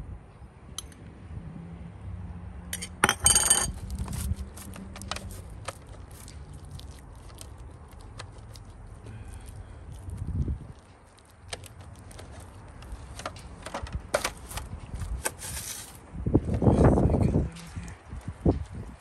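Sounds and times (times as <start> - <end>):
foil pan crinkling: 3.9 - 9.1.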